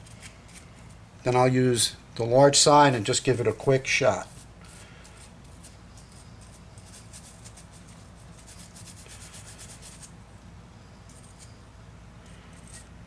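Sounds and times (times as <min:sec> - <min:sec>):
brush scrubbing on steel: 0:04.3 - 0:10.2.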